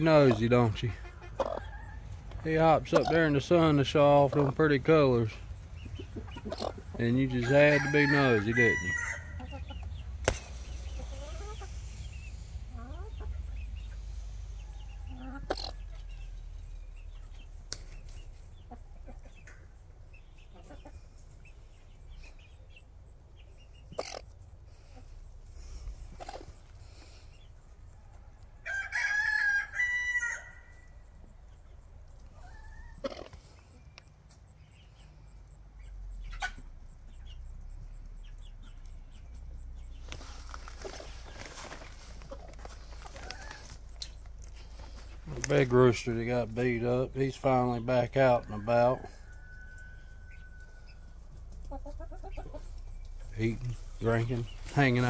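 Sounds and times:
chickens clucking: 0.0s - 55.0s.

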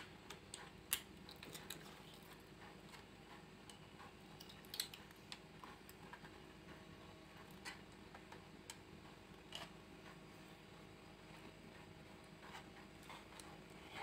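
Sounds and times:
knife clicking and scraping on plastic: 0.3s - 2.2s.

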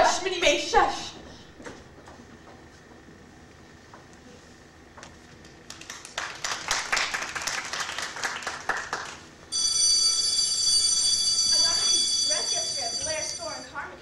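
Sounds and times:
audience applauding: 5.7s - 9.3s
high ringing tone: 9.5s - 14.0s.

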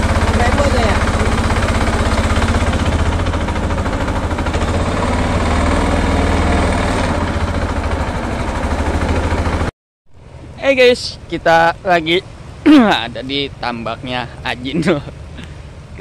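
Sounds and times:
boat engine knocking: 0.0s - 9.7s.

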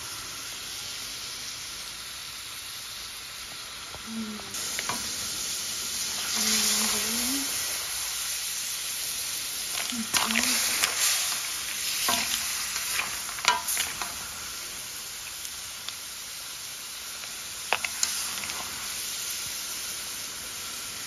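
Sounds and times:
seafood sizzling in pan: 0.0s - 21.0s.

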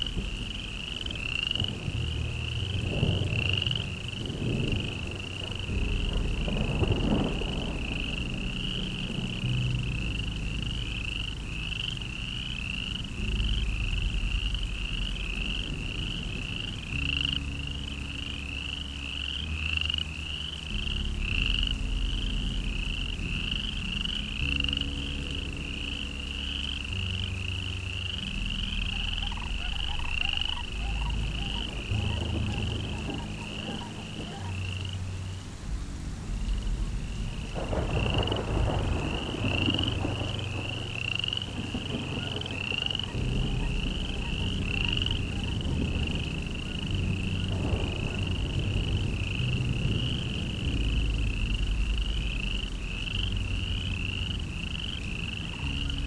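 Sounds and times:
low droning tones: 0.0s - 56.0s
frog-like animal chirping: 10.5s - 35.4s, 39.0s - 50.2s.

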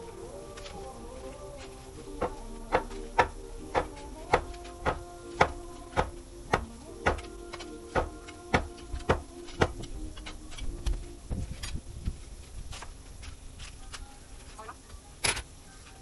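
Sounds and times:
low hum of tones: 0.0s - 12.7s.

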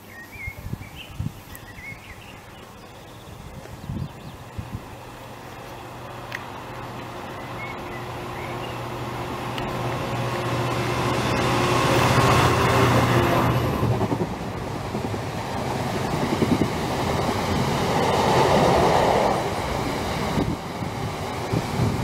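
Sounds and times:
diesel locomotive engine: 2.1s - 22.0s
train wagons rumbling and clattering: 4.4s - 22.0s.

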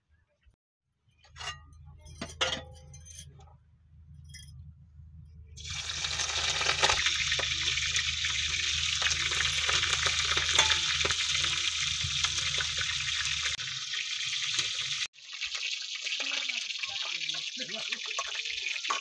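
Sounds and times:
chicken sizzling in hot oil: 5.6s - 19.0s.

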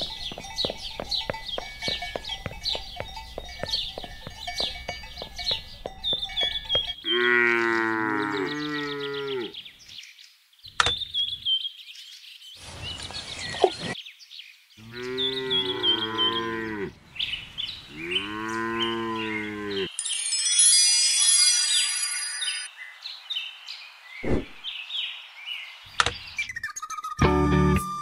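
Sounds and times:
birds chirping: 0.0s - 20.3s
cows mooing: 6.3s - 9.6s, 14.8s - 17.0s, 17.9s - 19.9s.

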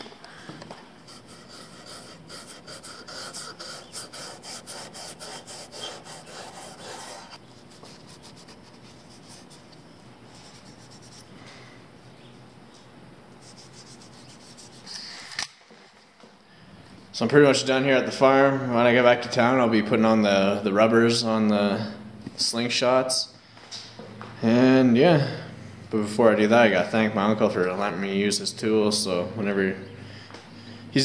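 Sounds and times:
cloth wiping wood: 1.1s - 11.3s, 13.4s - 15.0s.

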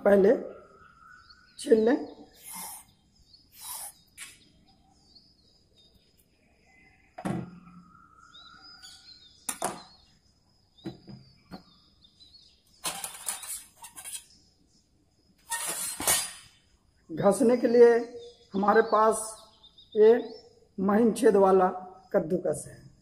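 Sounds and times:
small birds chirping: 0.0s - 23.0s
rasping scrape: 15.4s - 16.4s.

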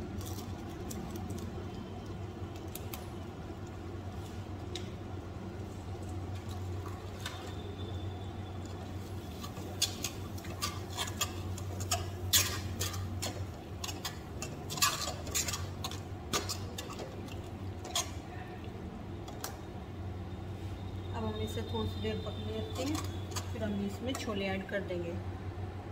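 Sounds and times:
metal spatula scraping a pan: 9.0s - 18.2s, 22.2s - 24.3s.

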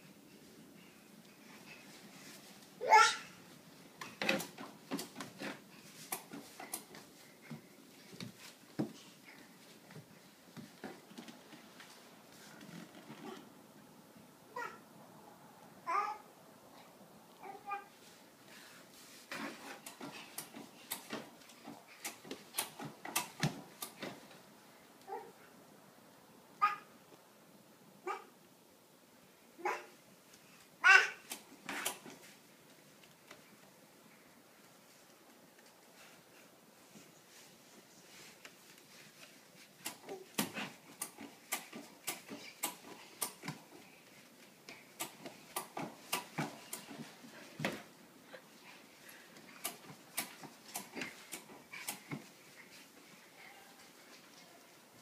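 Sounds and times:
baby jumper clicks and creaks: 4.0s - 7.1s, 19.3s - 24.2s, 30.9s - 32.3s, 39.8s - 43.8s, 44.7s - 47.2s, 49.4s - 52.3s
baby jumper knocking and creaking: 4.0s - 7.6s, 19.3s - 24.3s.

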